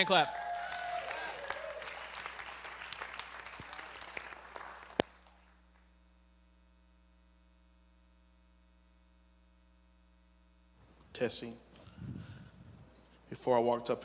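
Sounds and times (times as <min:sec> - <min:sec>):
crowd applauding: 0:00.0 - 0:05.9
faint steady hum: 0:00.1 - 0:14.0.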